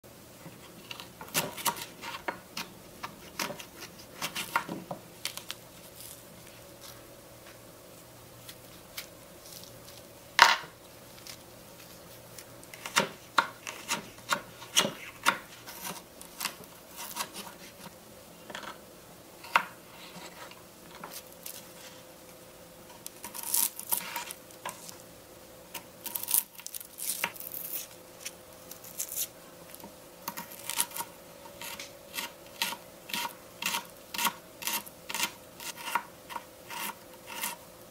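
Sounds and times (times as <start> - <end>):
knife cutting on wooden board: 30.3 - 37.6.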